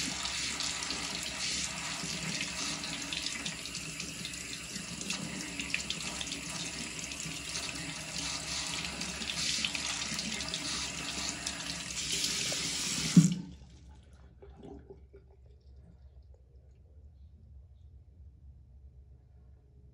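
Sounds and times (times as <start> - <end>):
faucet water splashing into sink: 0.0 - 13.6.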